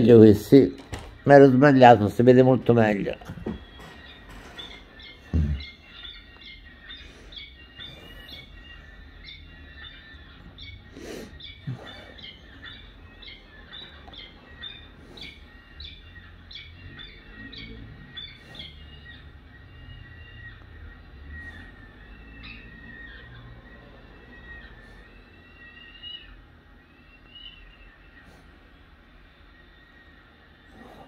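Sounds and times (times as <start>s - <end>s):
chicks' high-pitched begging chirps: 0.0s - 31.0s.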